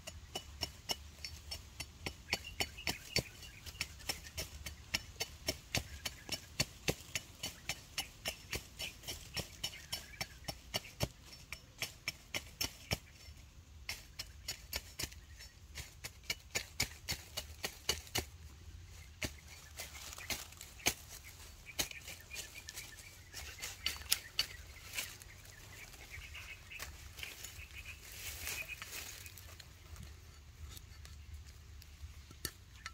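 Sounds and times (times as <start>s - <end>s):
sharp knocks from hand tool: 0.0s - 18.3s.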